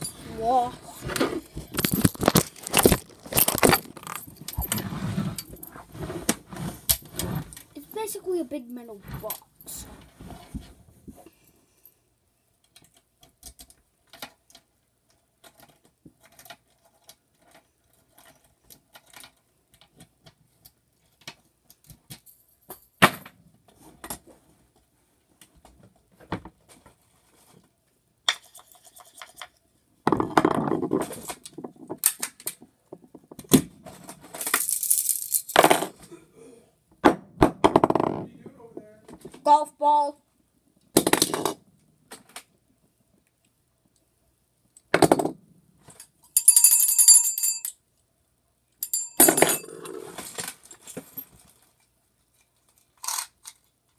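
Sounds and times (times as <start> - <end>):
rustling clatter: 0.0 - 8.0.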